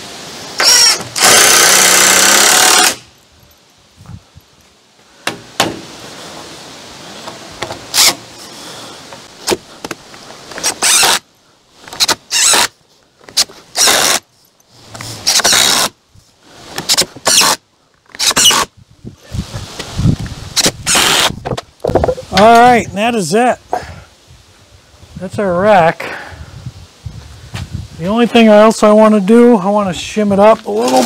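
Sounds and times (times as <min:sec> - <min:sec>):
cordless drill driving screws: 0:00.6 - 0:03.0, 0:07.9 - 0:08.2, 0:10.6 - 0:11.2, 0:12.0 - 0:12.7, 0:13.4 - 0:14.2, 0:15.2 - 0:15.9, 0:16.9 - 0:17.6, 0:20.6 - 0:21.3.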